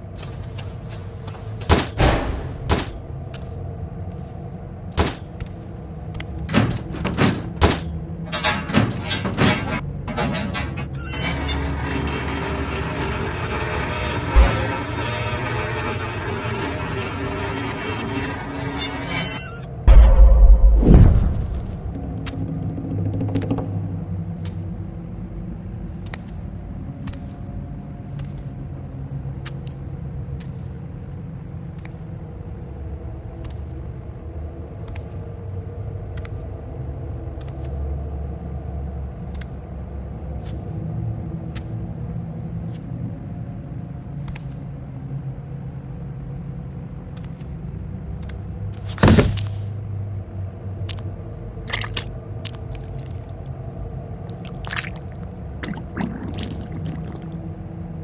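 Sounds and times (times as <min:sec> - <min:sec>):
steady low rumble: 0:19.7 - 0:58.0.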